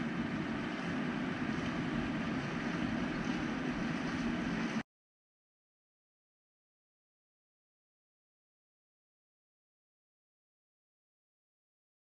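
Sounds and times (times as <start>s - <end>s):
rushing outdoor background noise: 0.0s - 4.8s.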